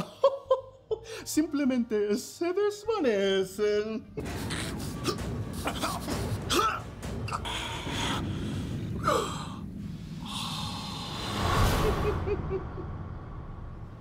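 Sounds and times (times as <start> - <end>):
hissing exhale: 7.4 - 11.6
man breathing hard: 7.4 - 11.6.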